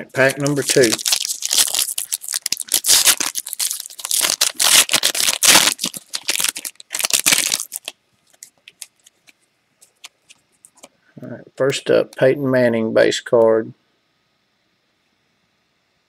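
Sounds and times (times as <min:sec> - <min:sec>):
foil wrapper tearing and crinkling: 0:00.2 - 0:10.9.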